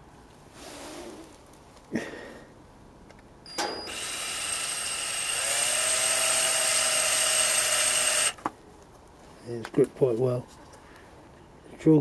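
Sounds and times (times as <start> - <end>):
power drill boring through plastic: 3.9 - 8.4.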